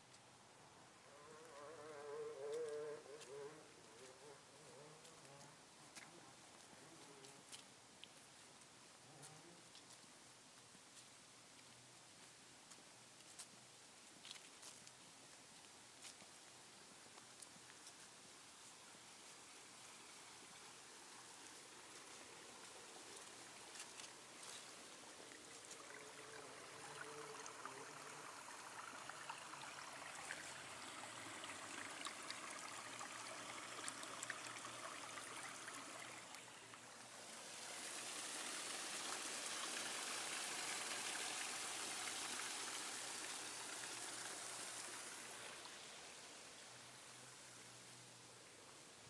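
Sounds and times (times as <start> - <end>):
stream of water splashing: 11.0 - 49.0.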